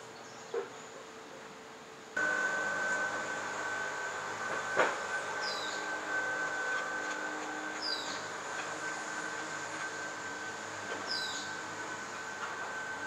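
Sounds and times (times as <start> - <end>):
high-pitched drone: 2.2 - 13.0
bird chirps: 5.4 - 5.8, 7.8 - 8.2, 11.1 - 11.6.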